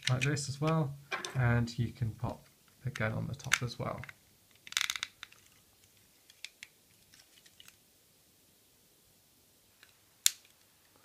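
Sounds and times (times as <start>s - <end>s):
plastic toy parts clicking: 2.9s - 5.6s.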